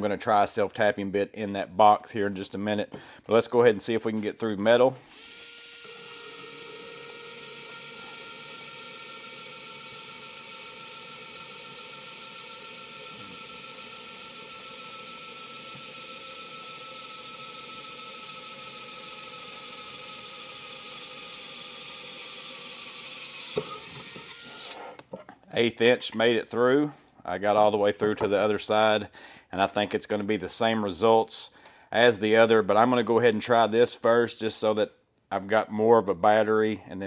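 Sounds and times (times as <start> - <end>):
electric screwdriver drilling metal: 5.0 - 24.8.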